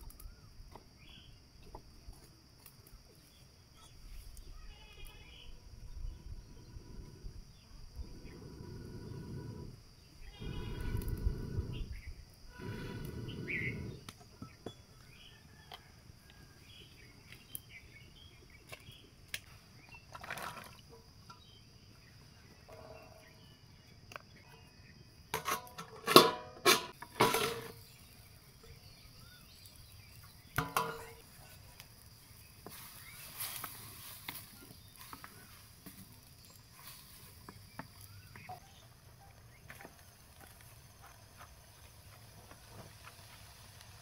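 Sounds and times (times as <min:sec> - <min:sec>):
puffs of air through pipe: 0:06.5 - 0:14.1
utensils knocking clay pot: 0:25.4 - 0:27.8, 0:30.6 - 0:31.2
vegetables cooking hiss: 0:27.0 - 0:39.0, 0:39.6 - 0:44.0.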